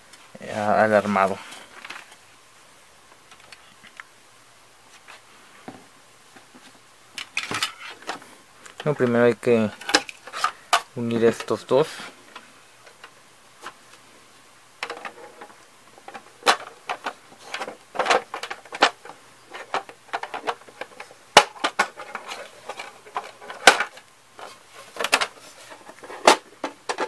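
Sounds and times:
plastic parts knocking and clicking: 0:09.8 - 0:11.5, 0:14.8 - 0:27.0.

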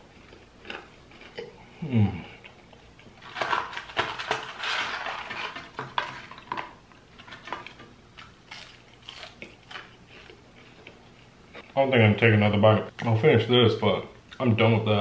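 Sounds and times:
paper carton rustling: 0:03.2 - 0:06.6.

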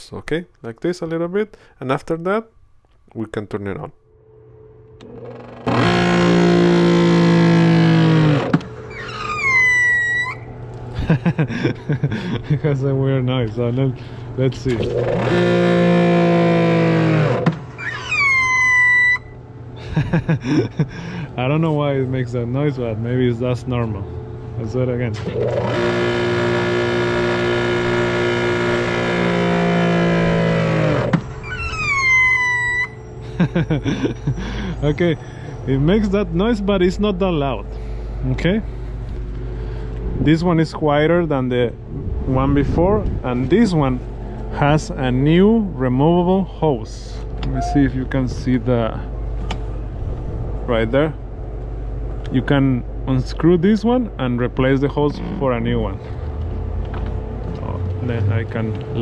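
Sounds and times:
high whine: 0:01.3 - 0:59.0
pressure washer motor humming: 0:05.0 - 0:09.3, 0:14.7 - 0:17.8, 0:25.2 - 0:31.6.

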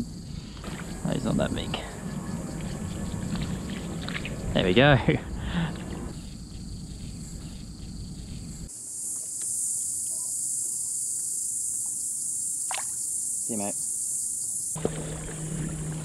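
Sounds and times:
high-pitched insect chorus: 0:00.0 - 0:16.0
water lapping against hull: 0:00.6 - 0:01.1, 0:01.8 - 0:04.8, 0:14.8 - 0:16.0.

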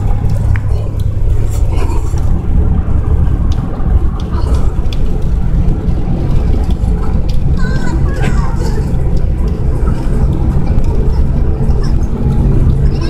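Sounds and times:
road and engine rumble in cabin: 0:00.0 - 0:13.0.

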